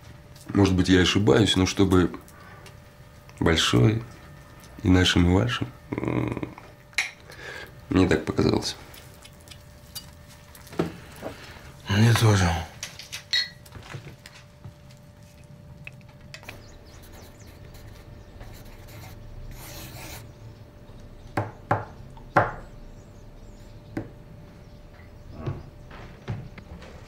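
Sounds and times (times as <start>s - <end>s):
pencil scratching on paper: 17.0s - 20.2s.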